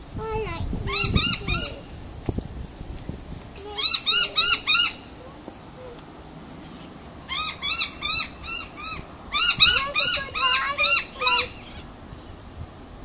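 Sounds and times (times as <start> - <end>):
fainter lower bird call: 3.7 - 12.4.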